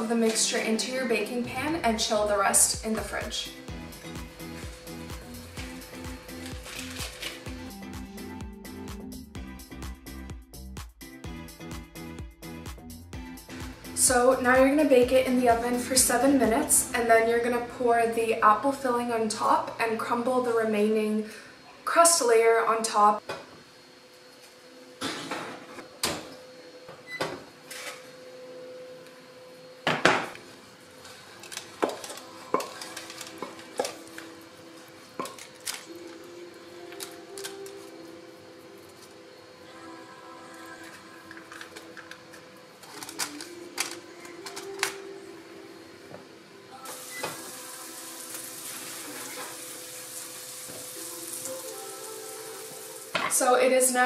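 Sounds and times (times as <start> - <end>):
oven hiss: 45.0 - 54.0.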